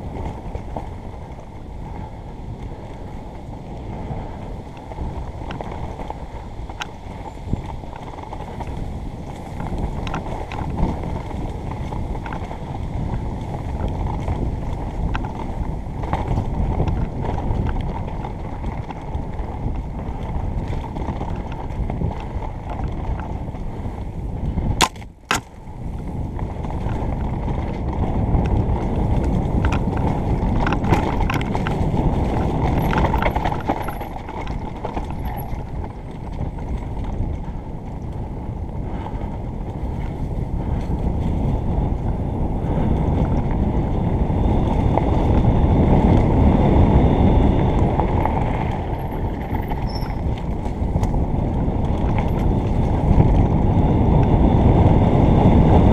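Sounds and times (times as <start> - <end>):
bike rattles and knocks: 0.0 - 55.9
wind noise on microphone: 0.0 - 55.9
tyre rumble: 24.5 - 55.9.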